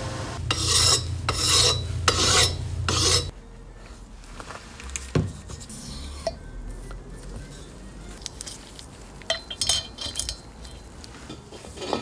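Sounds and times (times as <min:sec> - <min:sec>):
hand file rasping on metal: 0:00.5 - 0:03.3.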